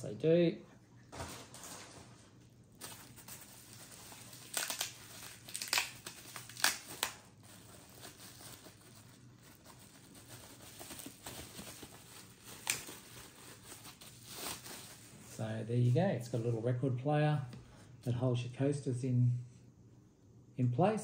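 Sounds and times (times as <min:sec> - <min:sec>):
packaging crinkling: 0:01.1 - 0:15.4.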